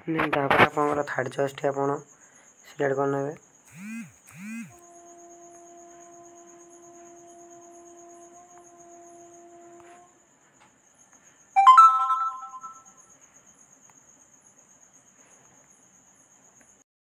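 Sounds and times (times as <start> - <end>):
crickets trilling: 0.0 - 16.8
faint steady tone: 3.7 - 15.6
phone notification chime: 11.6 - 12.9.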